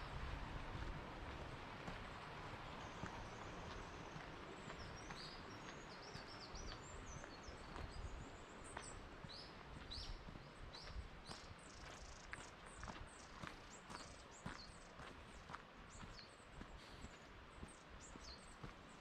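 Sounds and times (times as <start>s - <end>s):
running stream water: 0.0s - 19.0s
small birds chirping: 2.4s - 19.0s
footsteps on gravel: 11.2s - 17.2s.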